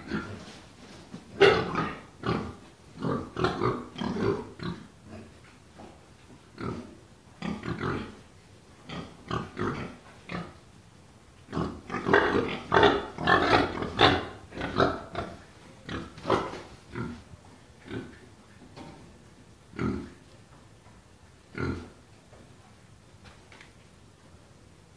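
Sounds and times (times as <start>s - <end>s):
pigs grunting: 0.0s - 0.6s, 1.4s - 5.3s, 6.6s - 8.2s, 8.9s - 10.6s, 11.5s - 17.2s, 17.8s - 18.2s, 19.7s - 20.2s, 21.5s - 22.0s.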